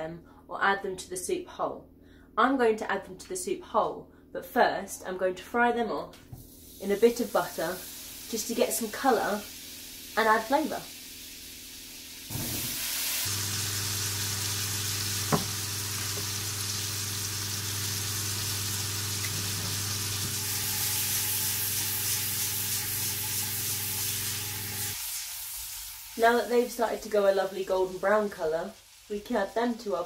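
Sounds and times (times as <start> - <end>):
mushrooms sizzling in a frying pan: 6.4 - 30.0
sharp knock: 15.3 - 15.5.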